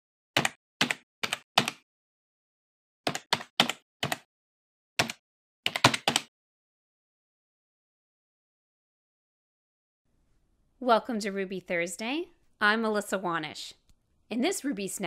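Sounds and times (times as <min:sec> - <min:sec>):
computer keyboard keystrokes: 0:00.4 - 0:01.8, 0:03.1 - 0:04.3, 0:05.0 - 0:06.3.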